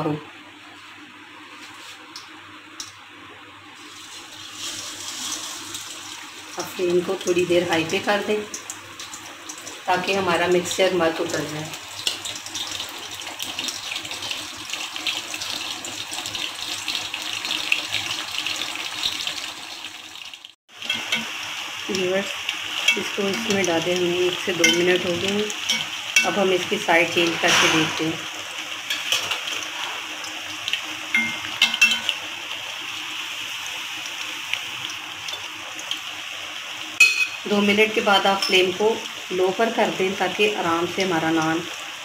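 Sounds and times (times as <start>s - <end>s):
bread deep-frying in hot oil: 1.6s - 42.0s
metal tongs scraping pan: 27.2s - 28.2s.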